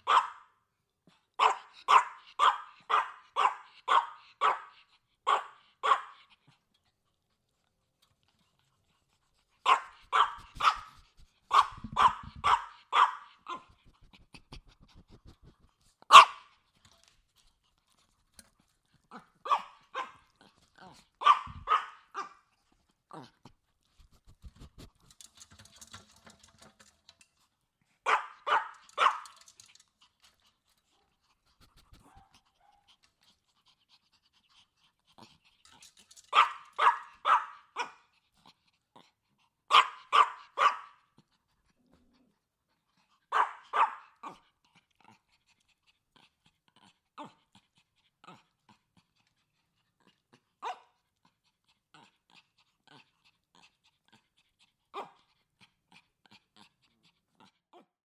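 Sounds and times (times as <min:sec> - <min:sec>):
small dog barking: 0:00.0 - 0:00.5, 0:01.4 - 0:06.2, 0:09.6 - 0:13.8, 0:16.1 - 0:16.5, 0:19.4 - 0:20.3, 0:21.2 - 0:22.4, 0:28.0 - 0:29.4, 0:36.3 - 0:38.0, 0:39.7 - 0:41.0, 0:43.3 - 0:44.4, 0:50.6 - 0:50.9
faint licking sounds: 0:13.6 - 0:19.2, 0:22.5 - 0:25.3, 0:29.6 - 0:36.1.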